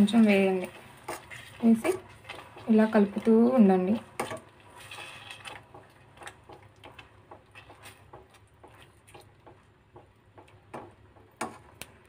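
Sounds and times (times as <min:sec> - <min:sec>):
spatula tapping a pan: 0:05.6 - 0:11.9.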